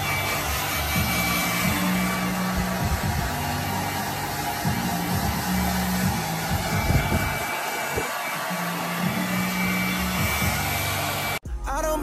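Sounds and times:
hair dryer running: 0.0 - 11.4
muffled music: 0.0 - 12.0.

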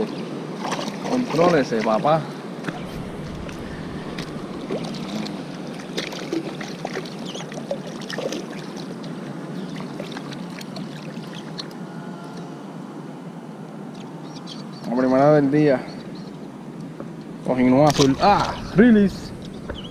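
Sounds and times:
water lapping against rocks: 0.0 - 11.8.

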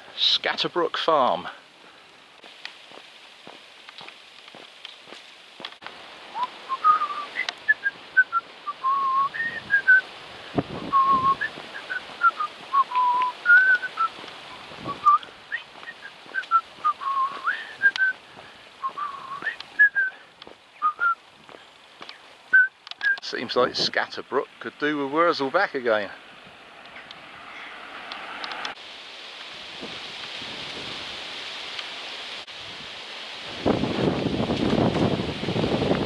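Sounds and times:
person whistling a tune: 6.4 - 10.0, 10.8 - 18.2, 18.8 - 20.2, 20.8 - 21.2, 22.5 - 23.2.

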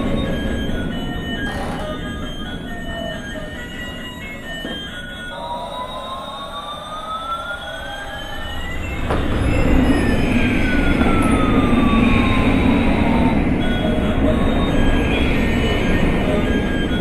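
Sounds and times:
toy tone sliding up and down: 1.3 - 2.4.

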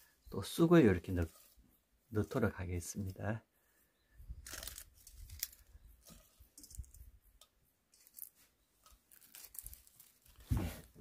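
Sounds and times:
tea leaves rustling and crinkling: 0.6 - 3.3, 4.4 - 7.1, 7.9 - 11.0.

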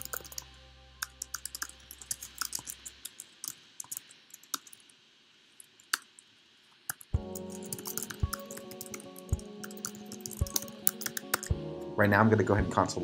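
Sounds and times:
typing on computer keyboard: 0.0 - 0.4, 1.0 - 4.8, 6.9 - 11.6.

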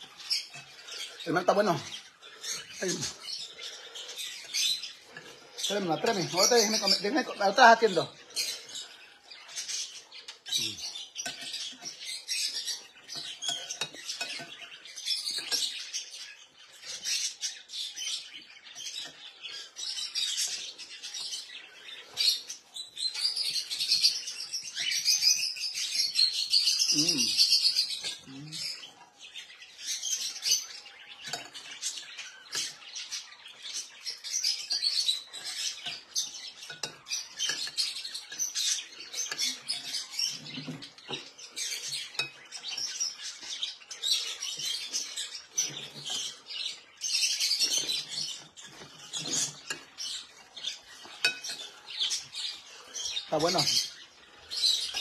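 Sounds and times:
caged birds chirping: 0.0 - 55.0
metal spoon clinking against bowl: 13.1 - 15.8, 34.7 - 40.0, 50.9 - 52.3.

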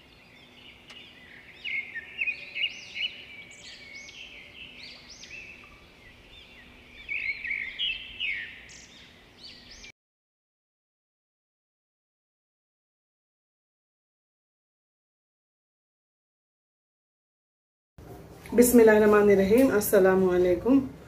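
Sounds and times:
small birds chirping: 0.0 - 9.9.

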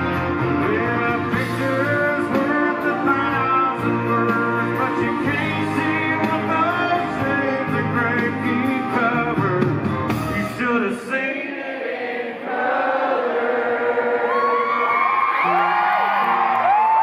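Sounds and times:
live country band playing: 0.0 - 11.1, 15.2 - 17.0
person singing: 0.0 - 11.4
audience singing along: 11.3 - 14.9.

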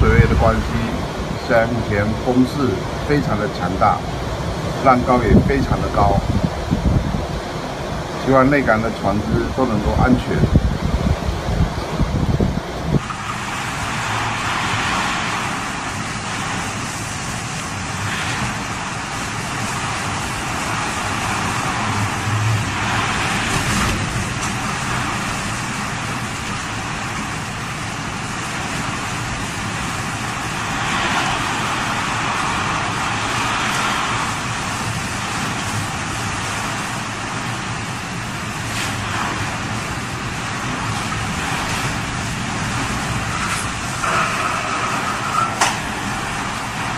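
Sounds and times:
strong wind blowing: 0.0 - 46.9
surf breaking against seawall: 13.0 - 46.9.

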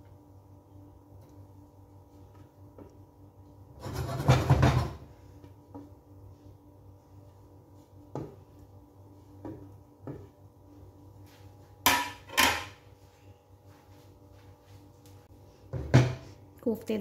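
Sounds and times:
low steady hum: 0.0 - 17.0
kitchenware clattering: 3.8 - 5.1, 11.8 - 12.8.

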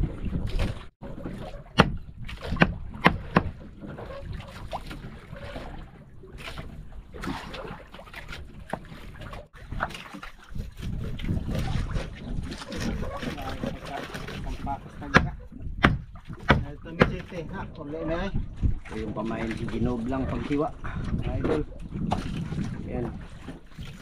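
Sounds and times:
sea noise: 0.0 - 24.0
wind on microphone: 0.0 - 24.0.

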